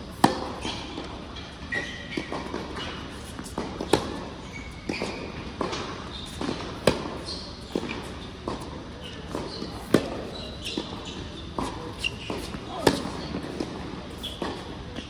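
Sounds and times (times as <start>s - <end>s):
racket striking ball: 0.1s - 15.0s
shoe squeaks: 0.6s - 15.0s
ball bouncing: 11.6s - 15.0s.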